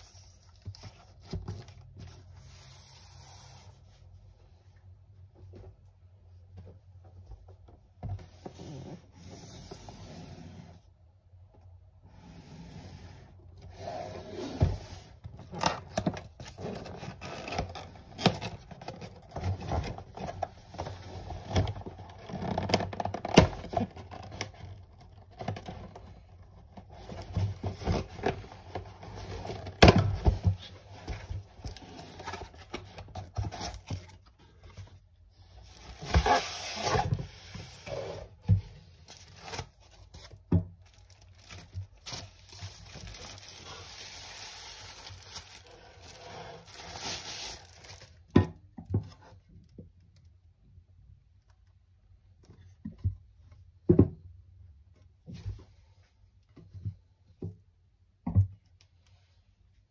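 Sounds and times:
cardboard box scraping and knocking: 35.6s - 39.6s
wrapping crinkling and tearing: 39.1s - 48.3s.

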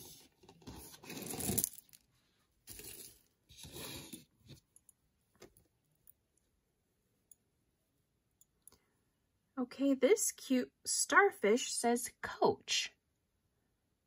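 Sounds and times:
jewelry and packaging rustling: 0.0s - 5.8s.

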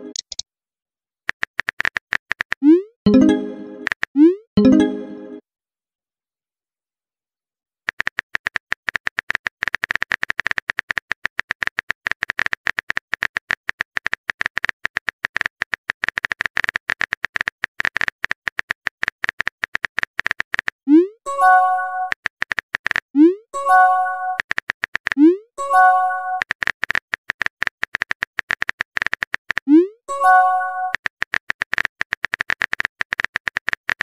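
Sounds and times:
phone keyboard typing clicks: 0.0s - 0.4s, 7.9s - 20.8s, 25.8s - 29.7s.

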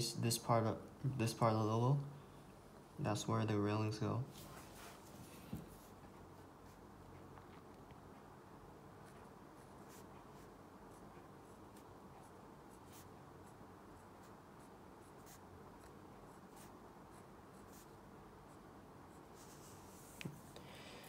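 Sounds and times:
steady low hiss: 0.0s - 21.0s
pencil scratching on paper: 9.0s - 20.6s.

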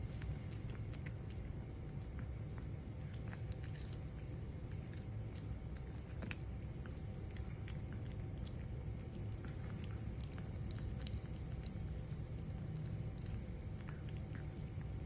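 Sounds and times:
dog chewing jerky: 0.0s - 15.0s
steady low hum: 0.0s - 15.0s.

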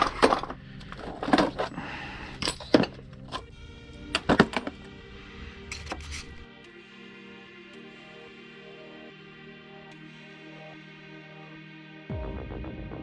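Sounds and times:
metal tools clinking together: 0.0s - 3.5s, 4.1s - 4.8s
soft background music: 0.0s - 13.0s.

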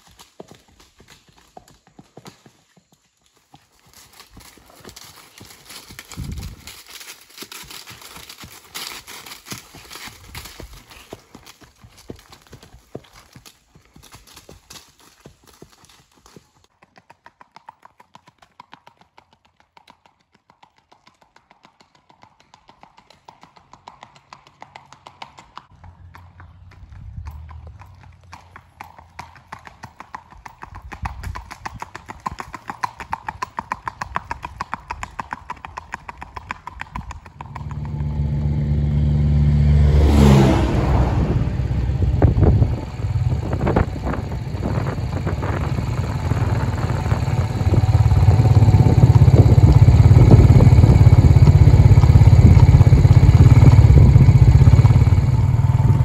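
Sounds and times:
horse hooves on pavement: 0.0s - 39.2s, 40.1s - 56.0s
vehicle driving past: 25.8s - 28.3s, 37.3s - 56.0s.

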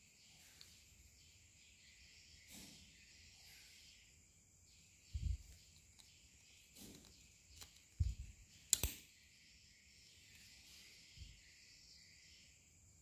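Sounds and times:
scissors snipping plastic pipe: 8.7s - 9.0s.

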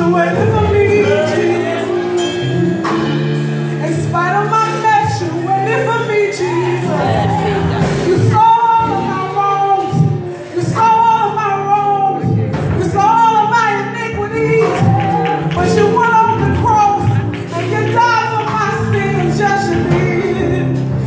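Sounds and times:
group singing worship song: 0.0s - 3.1s, 5.7s - 11.0s
musical accompaniment: 0.0s - 21.0s
woman singing into a microphone: 3.8s - 21.0s.

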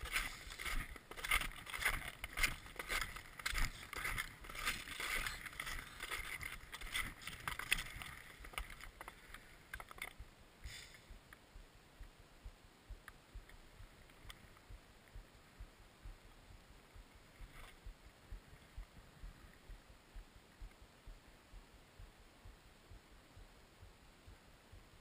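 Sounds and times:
footsteps crunching in snow: 0.0s - 9.6s
faint scattered clicks: 0.0s - 12.2s, 12.9s - 15.4s, 20.5s - 20.9s.

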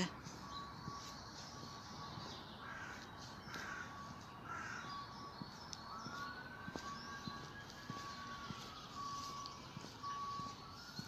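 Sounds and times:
crows cawing: 2.6s - 5.2s.

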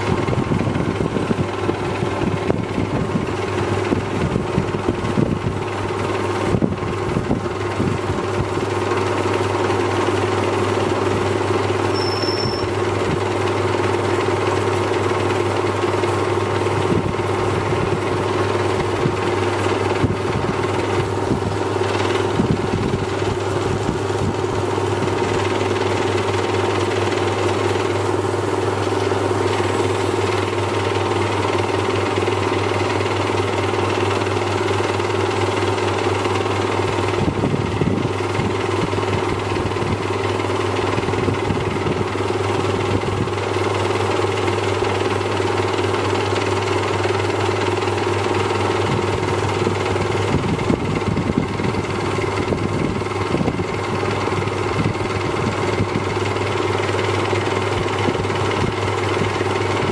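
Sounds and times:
lathe humming: 0.0s - 59.9s.

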